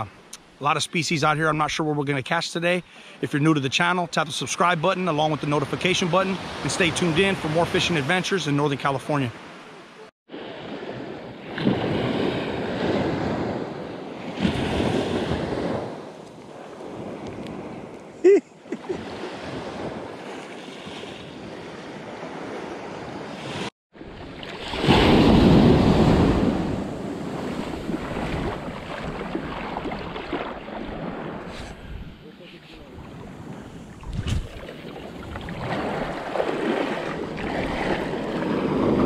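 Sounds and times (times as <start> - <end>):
surf waves washing on sand: 4.6 - 39.0
wind buffeting microphone: 25.0 - 39.0.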